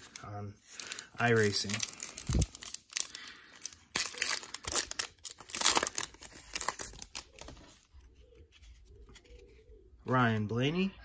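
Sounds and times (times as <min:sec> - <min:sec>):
foil wrapper tearing and crinkling: 0:00.8 - 0:07.6.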